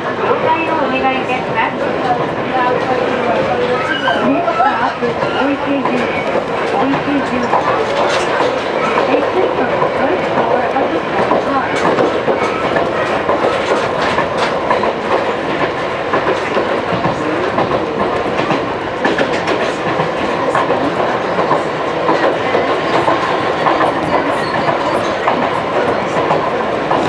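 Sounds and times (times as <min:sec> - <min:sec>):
train running rumble: 0:00.0 - 0:27.0
wheels clicking over rail joints: 0:05.0 - 0:27.0.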